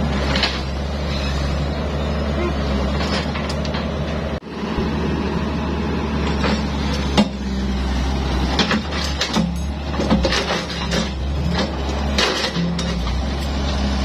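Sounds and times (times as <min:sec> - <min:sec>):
excavator diesel engine running: 0:00.0 - 0:14.0
sharp knocks and clatters: 0:08.5 - 0:13.2.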